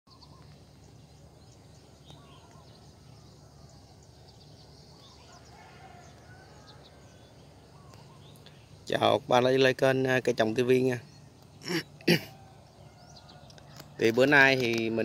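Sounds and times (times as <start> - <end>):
distant bird chirps: 0.1 - 15.0
distant fowl call: 5.0 - 8.6, 11.6 - 13.7.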